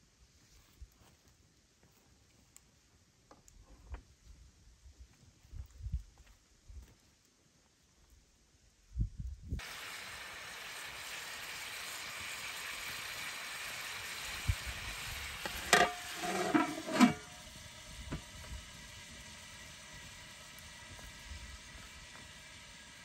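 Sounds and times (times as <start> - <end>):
food sizzling in a pan: 9.6 - 23.0
metal lid clattering: 15.6 - 17.3.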